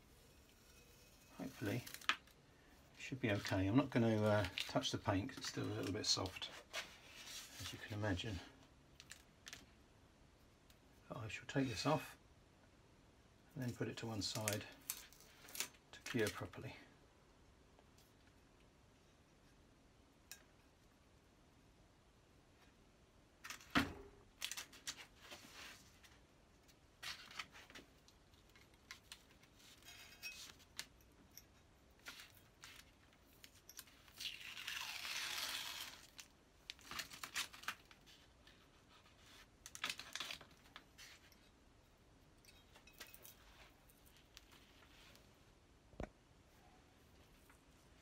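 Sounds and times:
masking tape peeling: 0:33.8 - 0:38.0.

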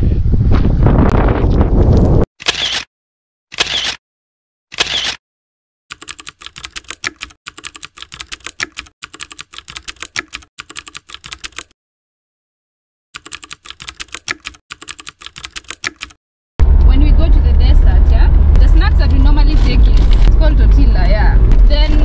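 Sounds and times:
keyboard typing: 0:05.9 - 0:11.7, 0:13.2 - 0:16.2.

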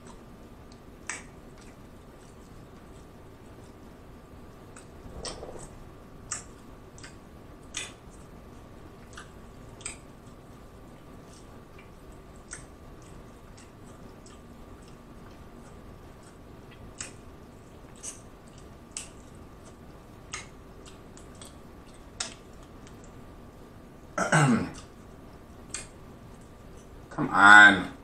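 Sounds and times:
throat clearing: 0:24.2 - 0:24.8.

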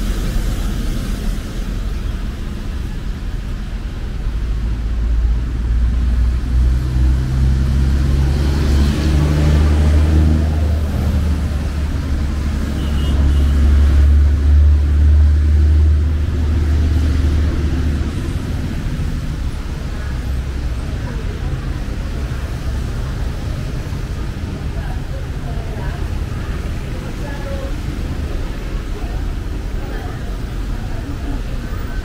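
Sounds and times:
vehicle engine drone: 0:00.0 - 0:32.0.

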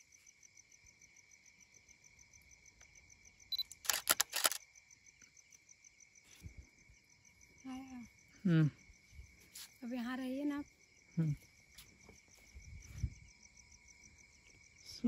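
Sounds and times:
crickets chirping: 0:00.0 - 0:15.0
autofocus beep: 0:03.5 - 0:03.8
camera shutter clicks: 0:03.6 - 0:04.6.

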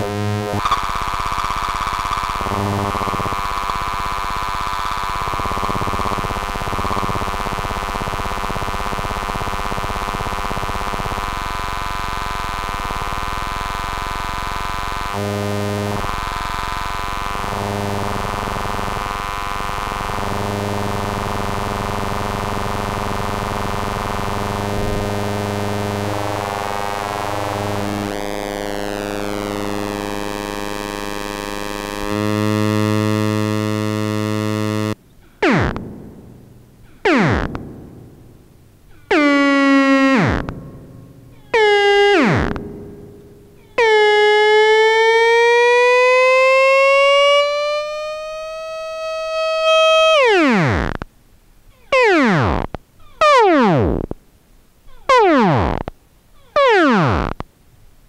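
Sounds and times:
synthesizer notes diving in pitch: 0:00.0 - 0:11.0, 0:19.9 - 0:51.0
buzzy synthesizer drone: 0:00.0 - 0:51.0, 0:51.9 - 0:54.2, 0:55.0 - 0:55.9, 0:56.5 - 0:57.4
gliding synthesizer note: 0:24.8 - 0:47.8.

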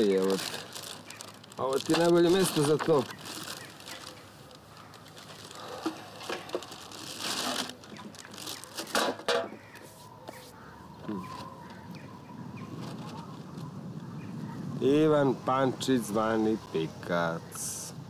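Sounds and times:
plastic bag rustling: 0:00.0 - 0:09.3.

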